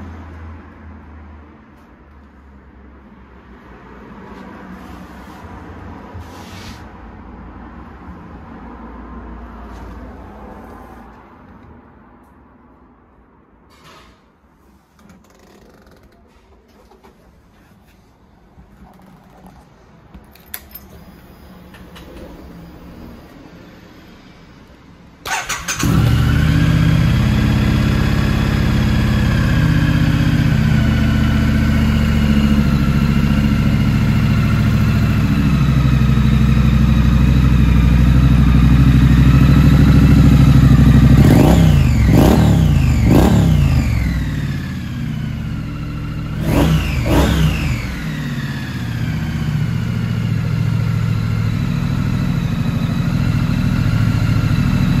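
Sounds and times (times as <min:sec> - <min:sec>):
motorcycle engine idling: 0:25.3 - 0:42.1, 0:42.7 - 0:46.4.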